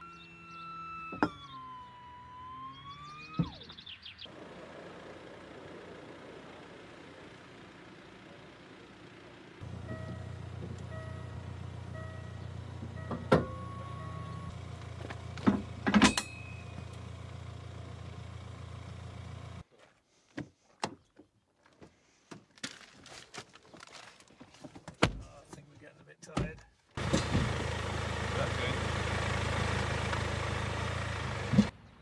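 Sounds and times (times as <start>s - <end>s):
vehicle engine idling: 3.2s - 19.6s, 27.0s - 31.7s.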